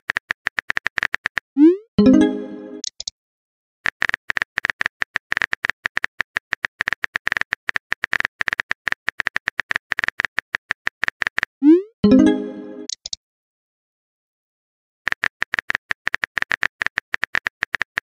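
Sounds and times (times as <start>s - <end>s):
phone keyboard clicks: 3.9s - 11.5s, 12.9s - 13.2s, 15.1s - 18.0s.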